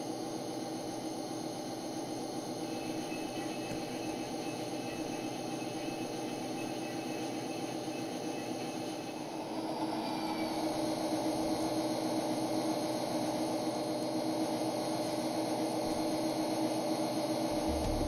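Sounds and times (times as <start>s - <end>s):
simulated diesel engine drone: 17.2s - 18.0s.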